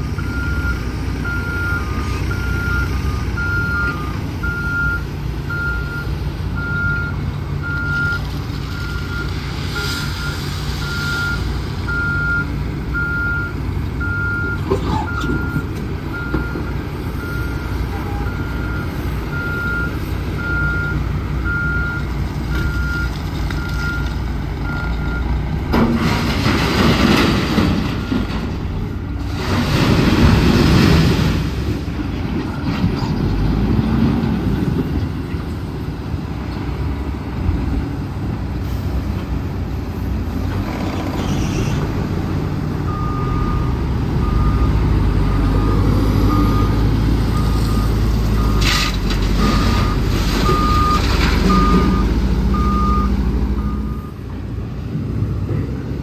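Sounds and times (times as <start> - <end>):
dump truck engine running: 0.0 - 56.0
reversing alarm beeping: 49.4 - 54.2.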